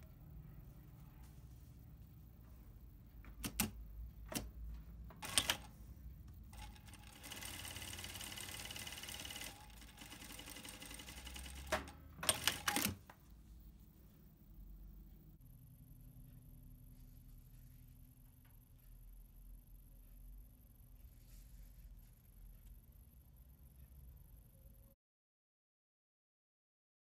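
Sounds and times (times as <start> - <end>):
sewing machine mechanical clicks: 3.4 - 4.5, 5.1 - 5.7, 6.5 - 13.1
sewing machine buzzing: 5.2 - 5.7, 6.5 - 13.0.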